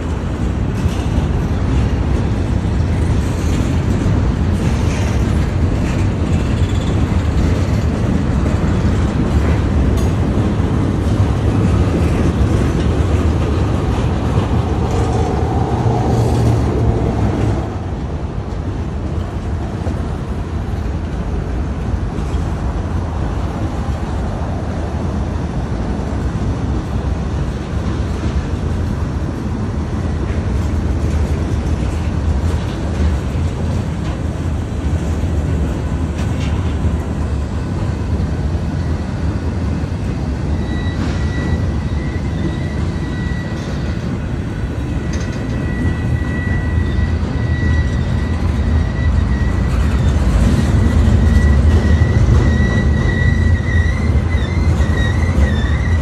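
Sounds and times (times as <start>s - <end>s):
diesel locomotive rumble: 0.0s - 56.0s
high wheel squeal: 40.2s - 56.0s.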